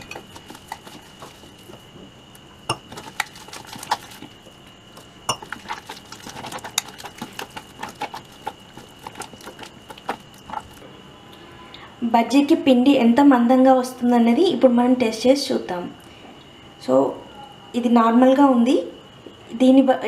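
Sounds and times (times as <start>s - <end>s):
hand squishing wet batter: 0.0s - 10.8s
fingers clinking metal bowl: 2.7s - 4.3s, 5.3s - 10.8s.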